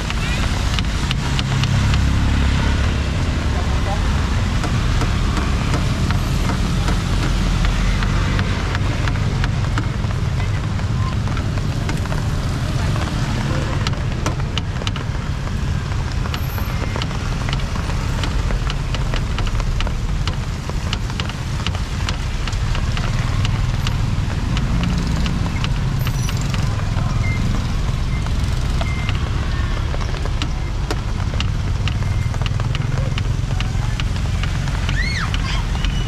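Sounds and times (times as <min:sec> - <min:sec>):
low engine rumble: 0:00.0 - 0:36.0
sharp clicks and ticks: 0:00.0 - 0:36.0.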